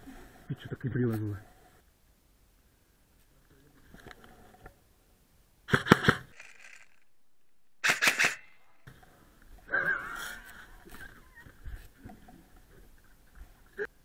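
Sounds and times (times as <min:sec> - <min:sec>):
airsoft gun firing sharp cracks: 0:07.8 - 0:08.7.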